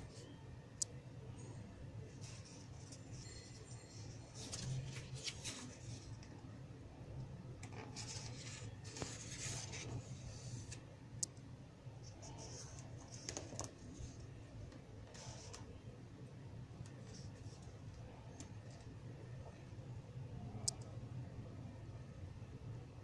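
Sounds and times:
low steady hum: 0.0 - 23.0
magazine pages rustling: 4.4 - 5.8.

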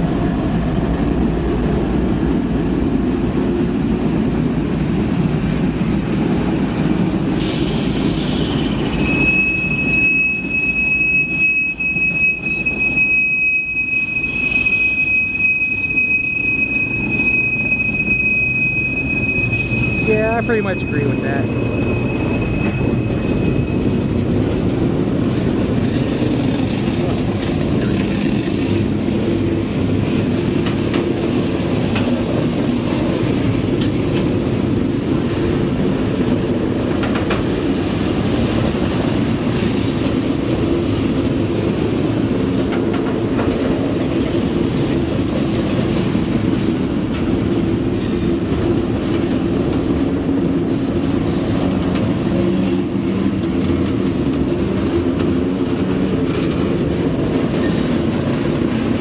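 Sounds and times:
train wheels rumbling on rail: 0.0 - 59.0
high squeal: 7.4 - 24.5
wheels clicking over rail joints: 38.6 - 59.0.

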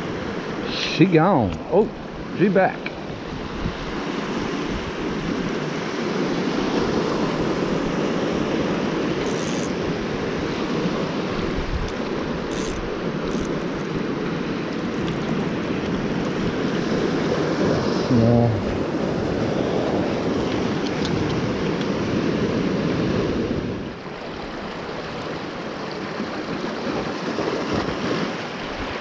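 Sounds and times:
wind on microphone: 3.1 - 14.1
small waves washing over rocks: 24.0 - 29.0.

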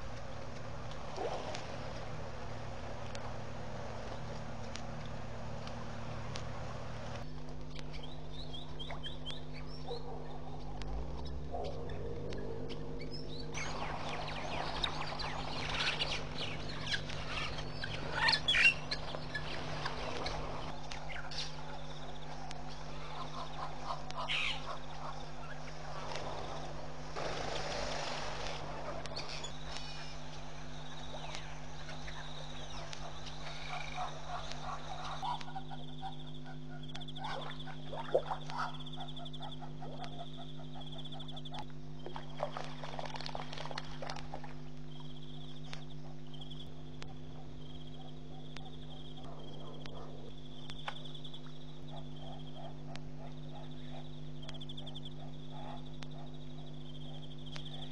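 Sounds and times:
low electrical hum: 0.0 - 57.9
pulsing trill of night creatures: 8.0 - 57.9
faint chirps: 27.6 - 42.4.

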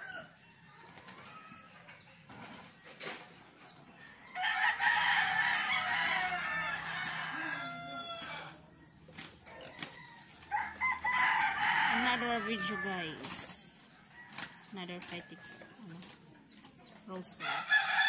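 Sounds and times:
rooster crowing: 0.0 - 0.5, 4.2 - 8.6, 9.6 - 13.2, 17.4 - 18.0.

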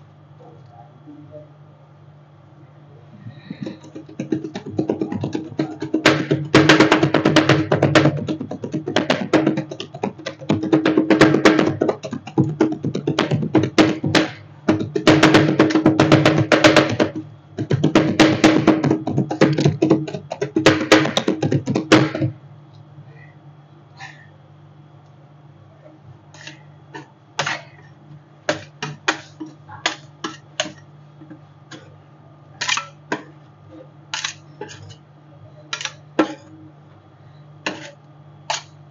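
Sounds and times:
low machine hum: 0.0 - 38.9
metal spatulas clattering: 32.6 - 33.3, 34.2 - 35.0, 35.7 - 36.5.

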